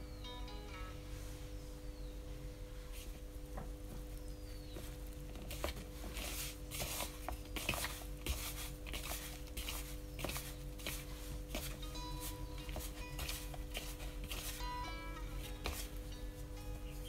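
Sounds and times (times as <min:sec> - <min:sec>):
steady low hum: 0:00.0 - 0:17.0
hands scrunching food in bowl: 0:05.0 - 0:11.8.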